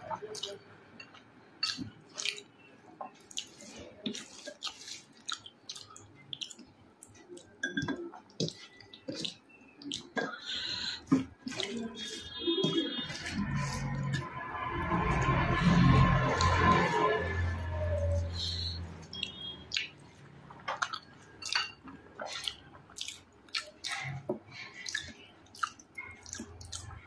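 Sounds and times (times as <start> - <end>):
wet chewing and lip smacks: 1.6 - 7.6, 8.2 - 14.2, 18.4 - 27.0
music: 13.4 - 18.6.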